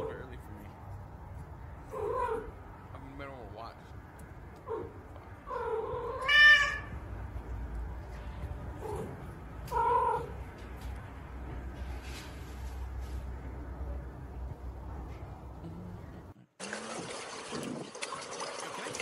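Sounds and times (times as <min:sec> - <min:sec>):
cat meowing: 0:05.5 - 0:07.0.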